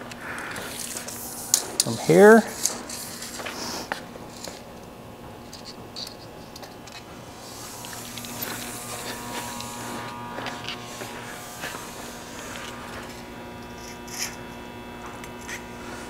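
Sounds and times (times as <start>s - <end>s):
electrical buzz: 0.0s - 16.0s.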